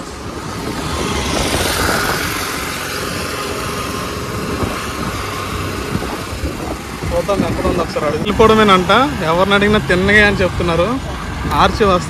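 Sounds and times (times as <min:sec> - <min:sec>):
motorcycle engine running: 0:00.0 - 0:12.0
road and wind noise: 0:00.0 - 0:12.0.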